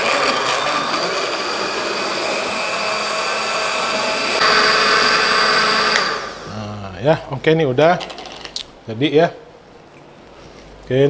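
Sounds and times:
blender motor whine: 0.0 - 6.6.

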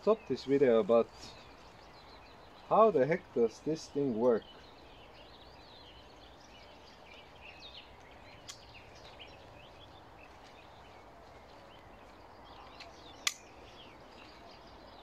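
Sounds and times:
birds chirping: 0.0 - 15.0
sharp click: 12.8 - 13.5.

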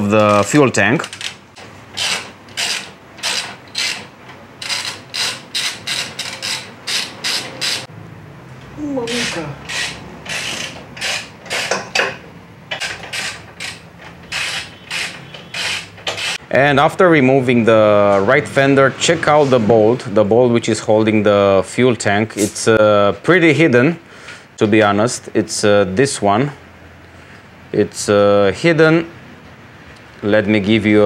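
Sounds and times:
ratchet wrench clicking: 2.0 - 7.9, 9.2 - 12.1, 12.7 - 16.4.

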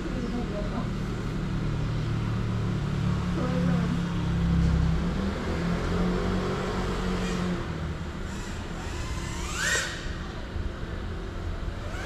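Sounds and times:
drone propellers whining: 6.8 - 11.0, 11.6 - 12.0.

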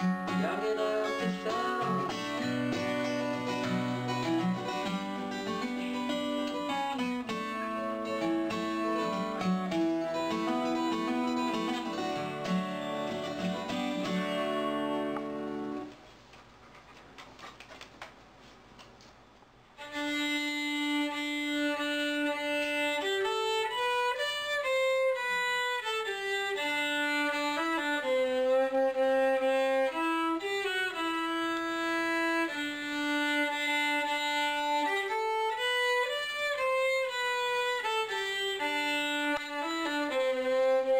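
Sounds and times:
acoustic guitar chords: 0.0 - 15.9
fiddle playing bowed tune: 0.0 - 15.9, 19.8 - 40.9.

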